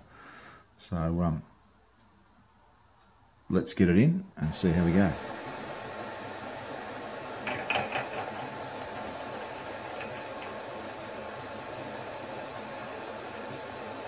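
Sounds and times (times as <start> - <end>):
milling machine running: 4.6 - 14.0.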